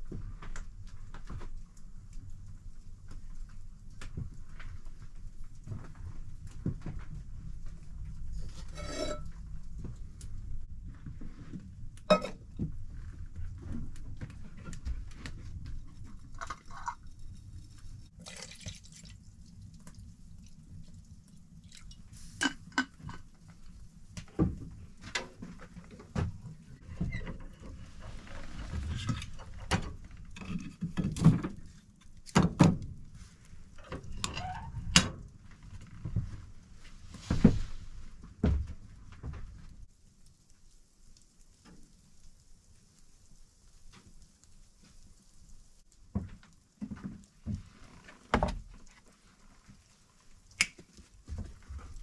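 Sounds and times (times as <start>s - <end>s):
milk pouring into metal pot: 18.2s - 20.0s.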